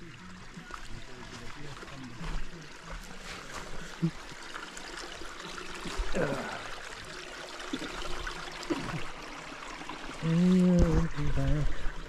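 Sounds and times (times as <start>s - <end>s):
faint voices: 0.0s - 4.4s
creek trickling over stones: 0.0s - 12.0s.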